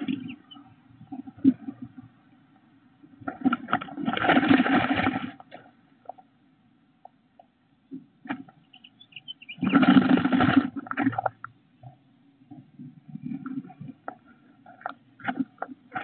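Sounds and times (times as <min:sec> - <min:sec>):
feathers and nest grass rustling: 0:09.1 - 0:11.2.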